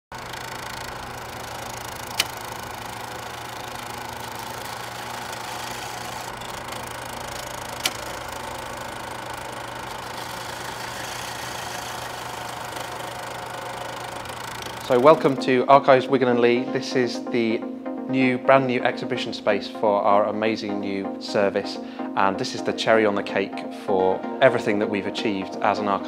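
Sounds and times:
mechanical hum with hiss: 0:00.2 - 0:15.4
sharp click: 0:02.1 - 0:02.4.

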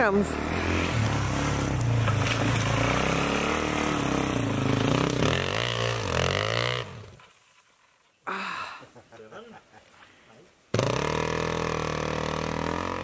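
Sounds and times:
dirt bike engine revving: 0:00.0 - 0:07.2, 0:10.7 - 0:13.0.

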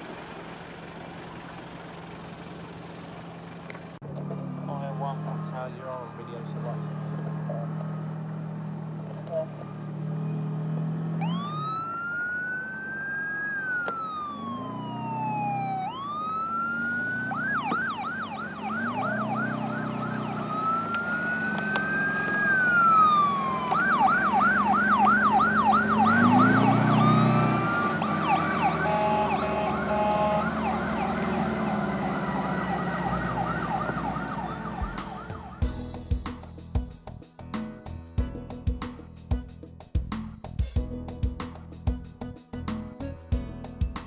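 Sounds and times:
vehicle engine running: 0:00.0 - 0:37.2
emergency sirens wailing and yelping: 0:04.6 - 0:35.8.

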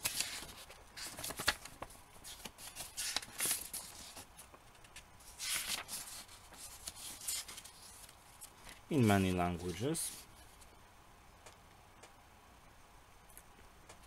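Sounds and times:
booklet pages flipping: 0:00.0 - 0:10.7.

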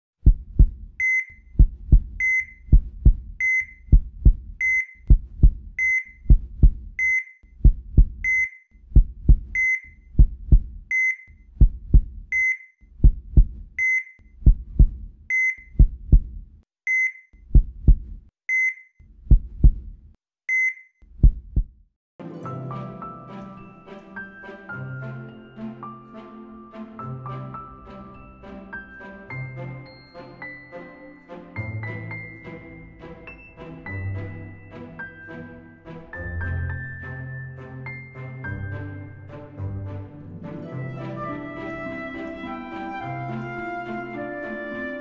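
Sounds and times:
heartbeat low thumps: 0:00.2 - 0:12.4, 0:13.0 - 0:13.8, 0:14.4 - 0:16.6, 0:17.5 - 0:18.3, 0:19.2 - 0:20.1, 0:21.2 - 0:21.8
heart monitor beep: 0:00.6 - 0:08.6, 0:09.4 - 0:13.2, 0:13.8 - 0:16.2, 0:16.9 - 0:17.2, 0:17.9 - 0:18.9, 0:20.5 - 0:21.4
music: 0:22.2 - 0:45.0.

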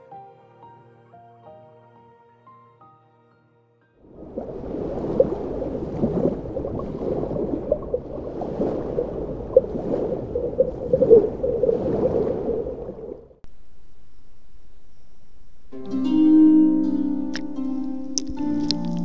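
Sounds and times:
water gurgling and sloshing: 0:04.0 - 0:13.4.

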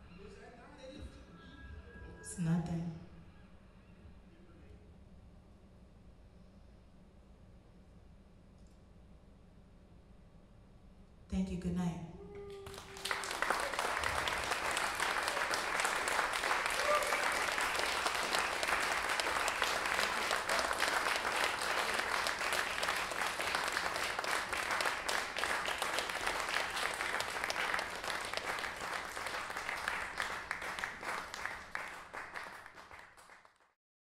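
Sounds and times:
audience applauding: 0:12.6 - 0:33.8.

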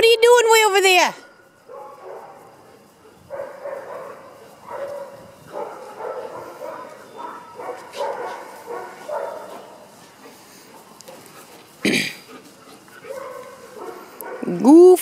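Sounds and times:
dog barking: 0:01.2 - 0:10.0, 0:13.0 - 0:14.6.

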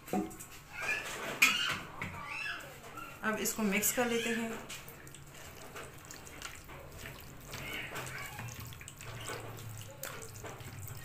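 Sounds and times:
hand squelching marinade: 0:03.6 - 0:11.0.

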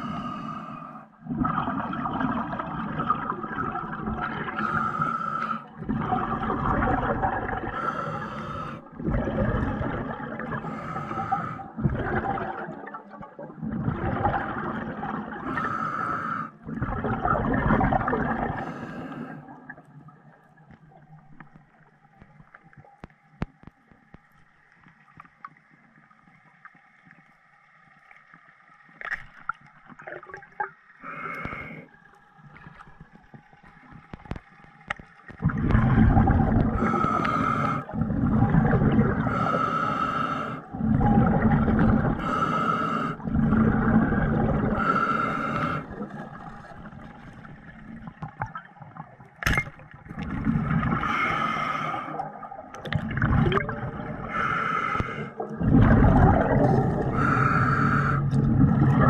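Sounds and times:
underwater bubbling and rushing: 0:00.0 - 0:59.0
underwater clicks: 0:20.6 - 0:25.7, 0:28.9 - 0:31.8, 0:32.5 - 0:39.4, 0:46.7 - 0:59.0.

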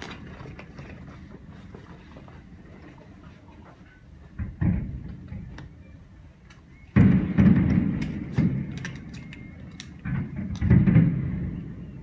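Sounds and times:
fireworks booming: 0:04.3 - 0:05.6, 0:06.9 - 0:12.0
fireworks crackling: 0:07.0 - 0:12.0.

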